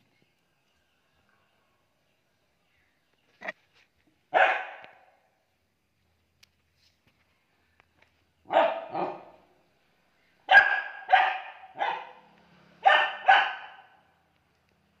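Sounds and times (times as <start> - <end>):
dog barking: 4.3 - 5.2, 8.5 - 9.5, 10.5 - 14.1.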